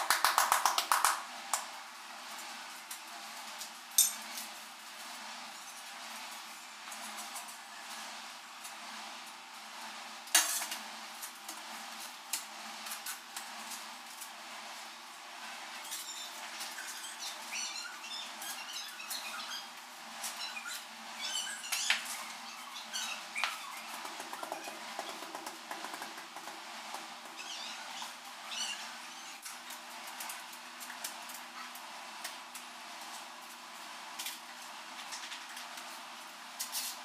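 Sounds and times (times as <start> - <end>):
tiles tapping and scraping: 23.4 - 28.2.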